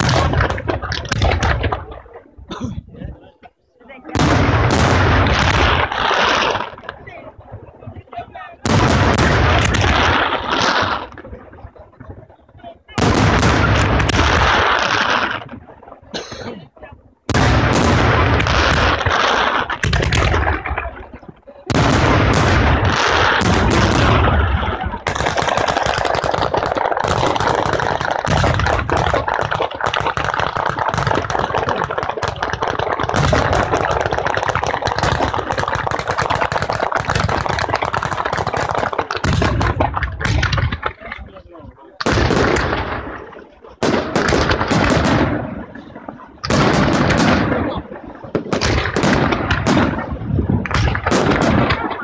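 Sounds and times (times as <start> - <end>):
firecracker strings crackling: 17.3 - 52.0.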